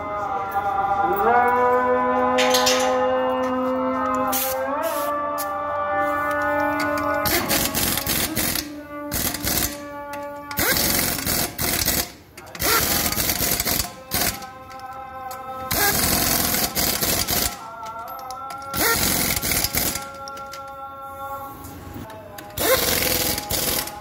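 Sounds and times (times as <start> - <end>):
impact wrench hammering: 6.3 - 20.6, 22.4 - 24.0.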